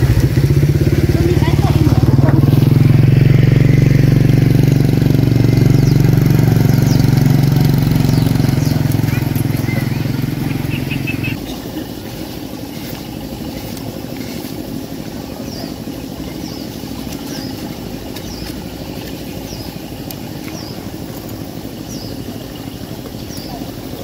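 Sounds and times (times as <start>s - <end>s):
motor engine running: 0.0s - 24.0s
high falling chirp: 5.4s - 11.6s.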